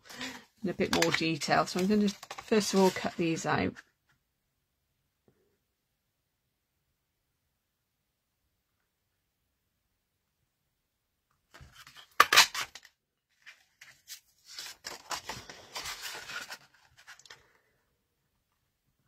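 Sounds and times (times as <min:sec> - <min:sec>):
paper rustling and sliding: 0:00.1 - 0:03.4, 0:13.3 - 0:17.4.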